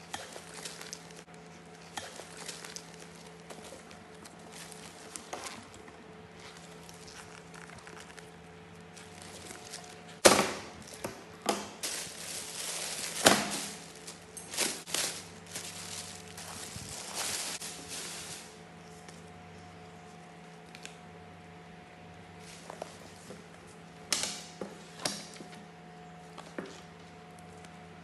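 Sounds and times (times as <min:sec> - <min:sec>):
plastic bag rustling and crinkling: 0:00.2 - 0:01.5, 0:02.1 - 0:11.1, 0:11.7 - 0:19.1.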